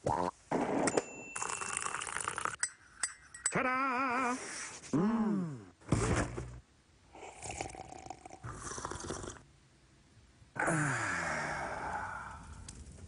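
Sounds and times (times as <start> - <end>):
man slurping tea: 1.4 - 2.6, 7.2 - 9.4
man sighing: 10.6 - 12.5.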